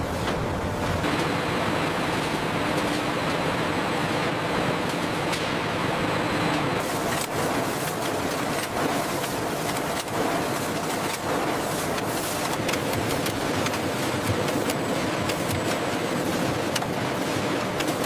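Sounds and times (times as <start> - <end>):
conveyor machinery running: 0.0 - 18.0.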